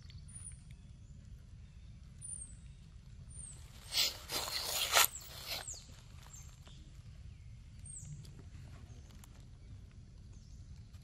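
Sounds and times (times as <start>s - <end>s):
dry leaves rustling: 3.6s - 6.7s.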